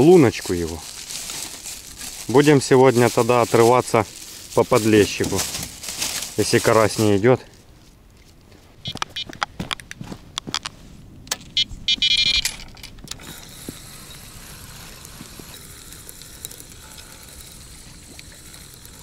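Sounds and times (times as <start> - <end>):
faint steady hiss: 0.0 - 9.2, 10.7 - 19.0
sharp clicks and knocks: 8.9 - 13.3.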